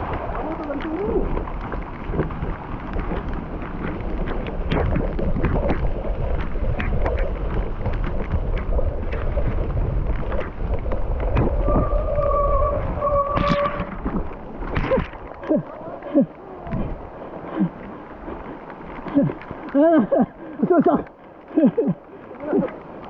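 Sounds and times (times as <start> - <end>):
bike rattling over rough ground: 0.0 - 23.0
wind rumble on microphone: 0.0 - 23.0
high squeal: 11.6 - 14.0.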